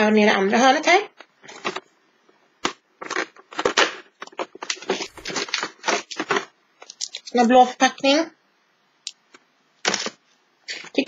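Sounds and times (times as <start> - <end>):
plastic wrapper crinkling: 3.0 - 7.5.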